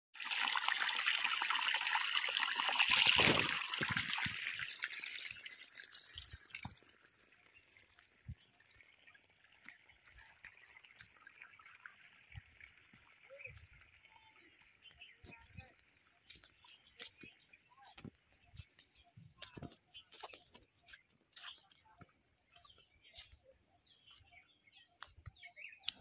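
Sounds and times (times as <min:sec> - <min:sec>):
water gushing from a pipe: 0:00.2 - 0:17.3.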